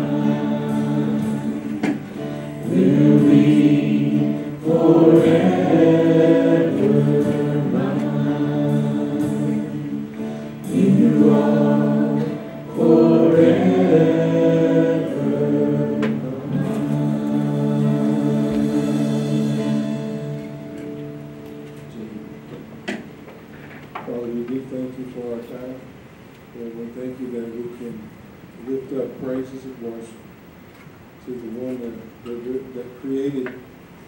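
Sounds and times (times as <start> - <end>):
group singing a hymn in harmony: 0.0 - 21.4.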